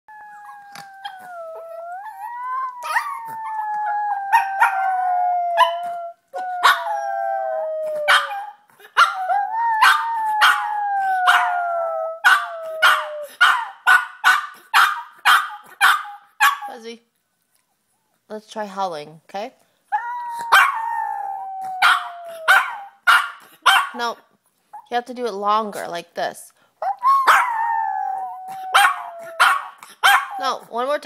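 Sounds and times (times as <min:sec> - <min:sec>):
dog howling: 0:00.1 - 0:13.7, 0:20.0 - 0:23.0, 0:26.9 - 0:30.3
dog yipping: 0:02.1 - 0:03.4, 0:06.6 - 0:06.9, 0:08.0 - 0:10.7, 0:11.3 - 0:11.5, 0:12.2 - 0:16.7, 0:20.0 - 0:20.9, 0:21.8 - 0:24.0, 0:26.8 - 0:27.7, 0:28.5 - 0:30.4.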